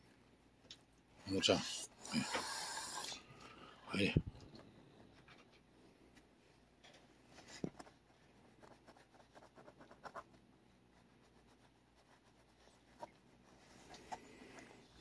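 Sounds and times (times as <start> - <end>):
glove rubbing cat fur: 7.3 - 15.0.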